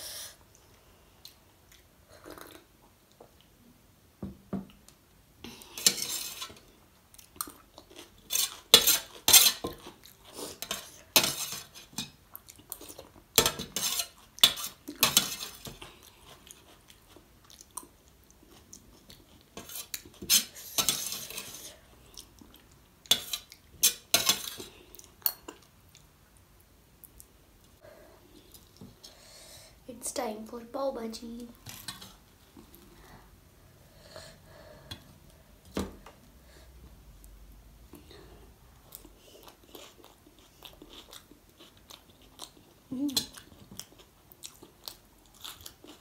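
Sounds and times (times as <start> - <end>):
spoon scraping on steel plate: 5.8 - 6.6, 8.3 - 9.8, 13.4 - 15.7, 19.6 - 21.7.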